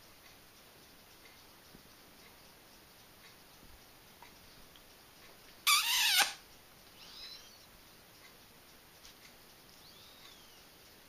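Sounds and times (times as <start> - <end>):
parrot harsh call: 5.7 - 6.4
parrot whistled chirp: 5.7 - 6.4.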